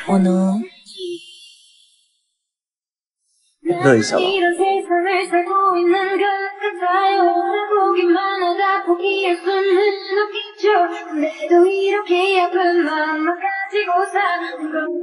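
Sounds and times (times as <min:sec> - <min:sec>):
high voice singing slow melody: 0:03.7 - 0:10.2.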